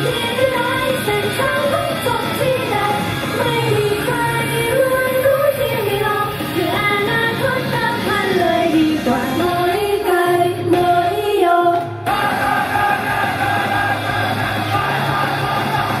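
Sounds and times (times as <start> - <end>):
sped-up pop song with female vocals: 0.0 - 12.0.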